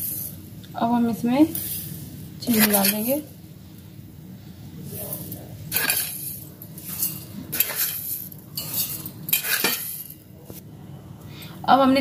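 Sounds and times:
sugar hissing into steel bowl: 0:05.0 - 0:10.2.

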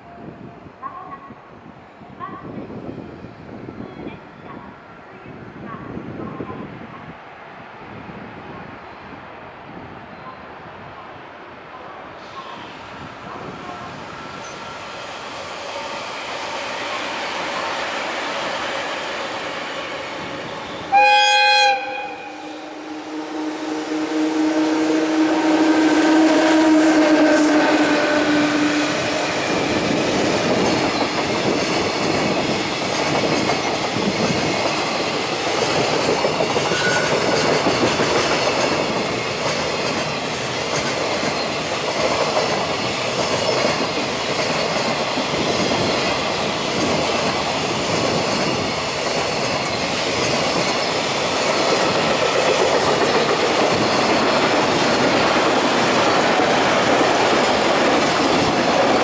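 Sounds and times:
train rumbling and clacking: 0:09.6 - 0:59.0
locomotive horn blast: 0:20.8 - 0:29.6.

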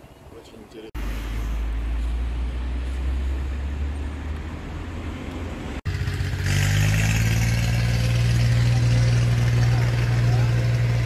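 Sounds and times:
low vehicle rumble: 0:01.0 - 0:11.0
vehicle engine idling: 0:05.8 - 0:11.0.

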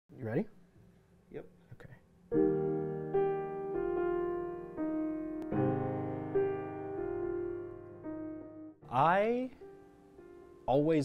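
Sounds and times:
piano playing slow chords: 0:02.3 - 0:11.0.

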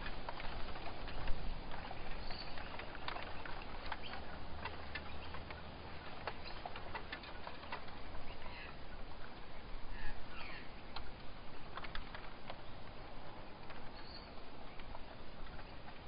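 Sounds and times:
small clicks and ticks: 0:00.0 - 0:09.5, 0:10.9 - 0:16.0
bird chirps: 0:01.8 - 0:04.4, 0:09.9 - 0:10.8, 0:13.9 - 0:15.8.

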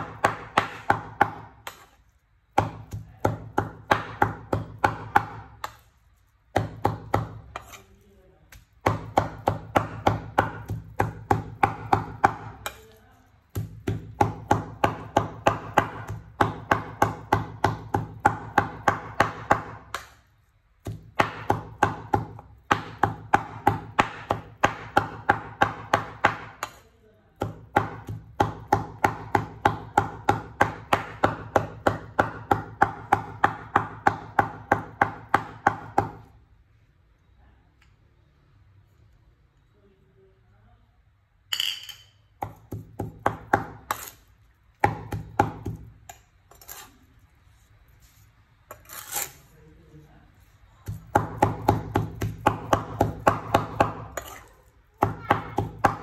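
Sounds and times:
cleaver chopping on wooden board: 0:00.0 - 0:02.0, 0:02.6 - 0:05.8, 0:13.5 - 0:20.2, 0:20.8 - 0:26.8, 0:27.4 - 0:36.3, 0:44.8 - 0:45.9, 0:50.8 - 0:54.4.

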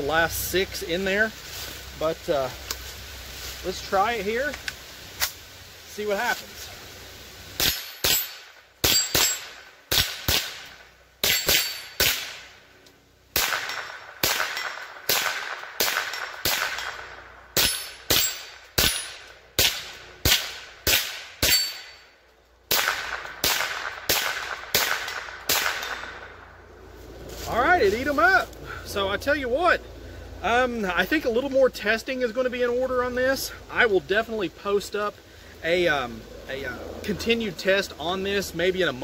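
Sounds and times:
rifle gunshots: 0:07.6 - 0:12.5, 0:13.3 - 0:21.8, 0:22.7 - 0:26.3.

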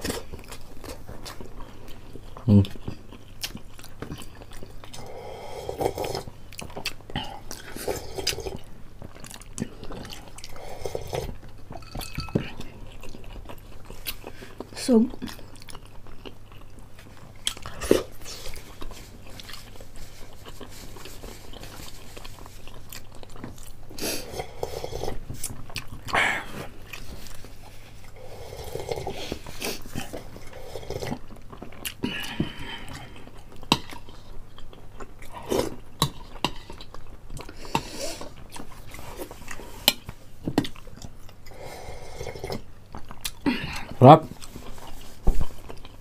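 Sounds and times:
chewing and biting fried chicken: 0:00.0 - 0:05.0, 0:06.0 - 0:10.5, 0:12.6 - 0:24.0.

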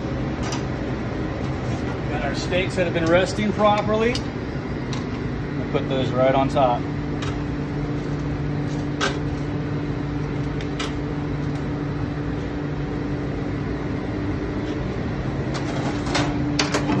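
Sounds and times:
ventilation hum and rush: 0:00.0 - 0:17.0.

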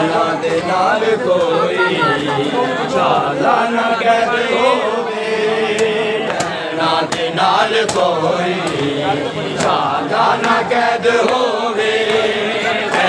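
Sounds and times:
crowd of men chanting: 0:00.0 - 0:13.0
sharp slaps: 0:05.7 - 0:09.0, 0:09.6 - 0:11.5.

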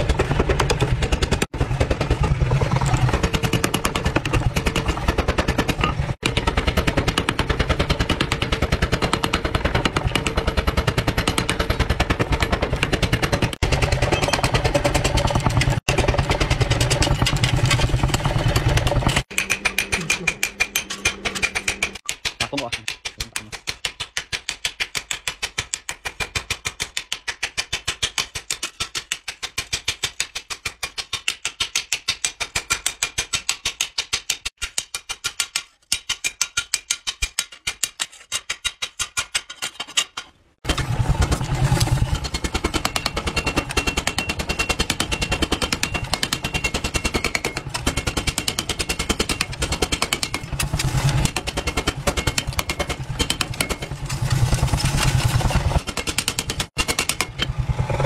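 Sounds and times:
low mechanical drone: 0:00.0 - 0:08.6, 0:56.8 - 0:58.0
power hammer pounding: 0:00.0 - 0:25.0, 0:40.6 - 0:58.0
hammer striking hot steel on anvil: 0:19.0 - 0:24.1, 0:42.3 - 0:50.5, 0:55.9 - 0:57.5.

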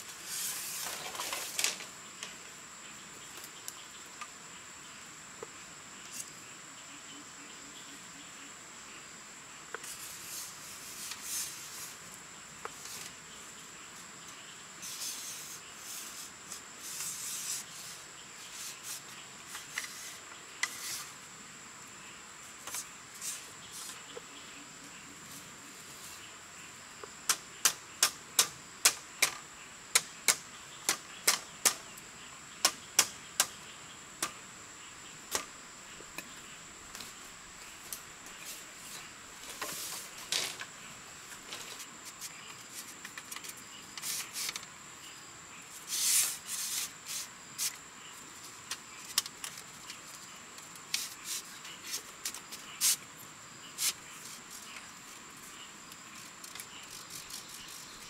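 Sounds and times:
bamboo poles clacking: 0:00.0 - 0:02.4, 0:18.4 - 0:21.1, 0:27.2 - 0:31.8, 0:32.6 - 0:33.6, 0:35.3 - 0:37.2, 0:39.4 - 0:44.7, 0:48.4 - 0:53.0, 0:55.9 - 0:58.0
bamboo clattering and rustling: 0:00.0 - 0:02.6, 0:09.7 - 0:13.2, 0:14.0 - 0:21.2, 0:35.3 - 0:44.8, 0:45.7 - 0:53.1, 0:53.7 - 0:58.0
high insect drone: 0:00.0 - 0:58.0.

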